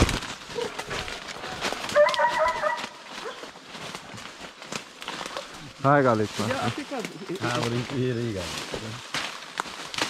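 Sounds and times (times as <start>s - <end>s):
hunting dogs baying: 0.5s - 3.6s.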